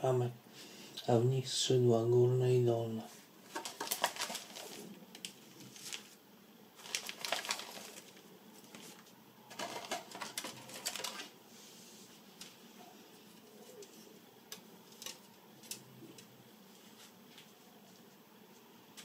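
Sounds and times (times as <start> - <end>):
plastic bag crinkling: 3.4 - 6.2, 6.8 - 11.4
plastic parts clicking: 9.5 - 11.3.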